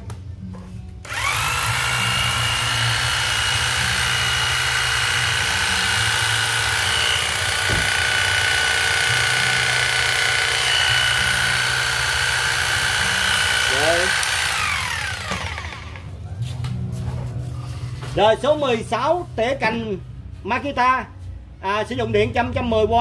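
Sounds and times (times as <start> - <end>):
electric hedge trimmer running: 1.0 - 16.0.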